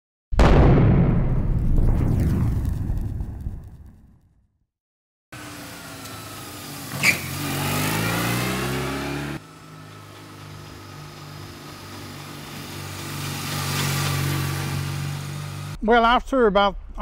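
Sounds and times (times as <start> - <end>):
motorcycle engine accelerating: 5.4 - 15.8.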